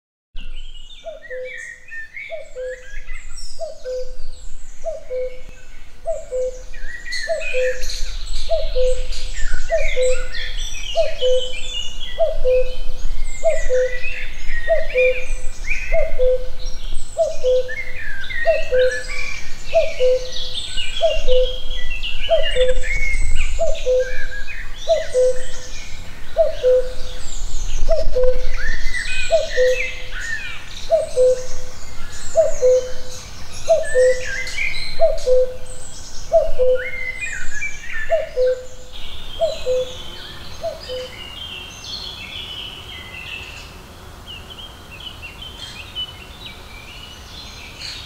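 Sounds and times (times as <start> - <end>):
songbirds singing and chirping: 0.4 - 48.0.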